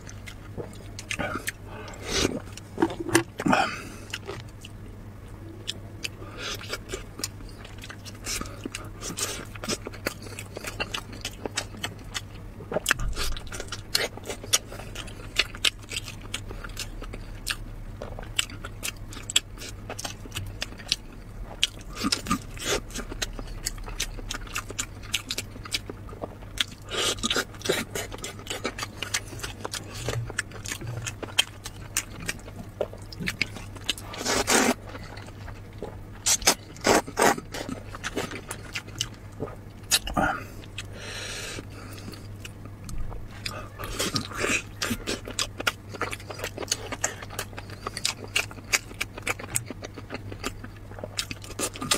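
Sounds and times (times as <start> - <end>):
person chewing soft food: 0.0 - 51.9.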